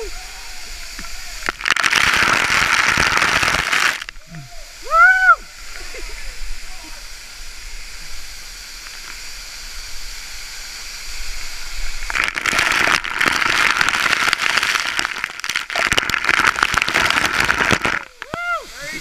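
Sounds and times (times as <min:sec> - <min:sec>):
waterfall rushing: 0:00.0 - 0:19.0
water spattering on microphone: 0:12.0 - 0:19.0.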